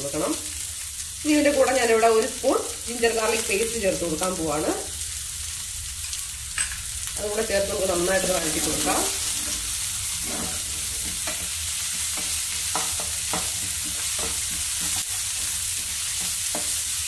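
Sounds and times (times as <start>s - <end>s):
food sizzling in hot oil: 0.0s - 17.0s
wooden spatula scraping a pan: 8.2s - 16.9s.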